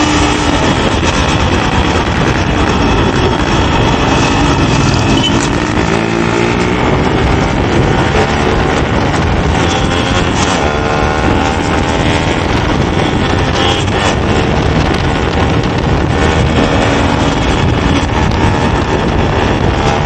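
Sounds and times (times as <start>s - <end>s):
two-stroke motorcycle engine running: 0.0s - 20.0s.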